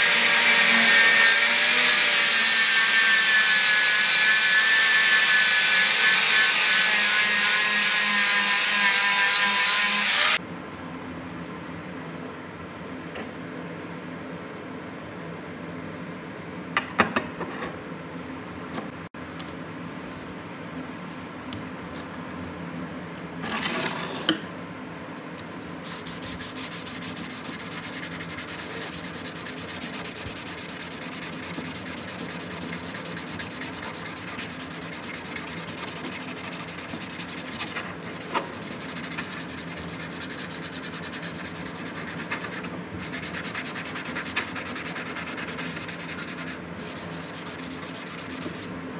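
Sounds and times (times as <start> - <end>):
abrasive scratching on chisel: 25.8 - 48.6.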